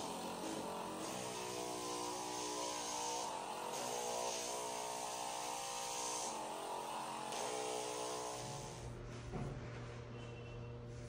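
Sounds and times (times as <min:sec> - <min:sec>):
massage gun buzzing: 0:00.0 - 0:08.8.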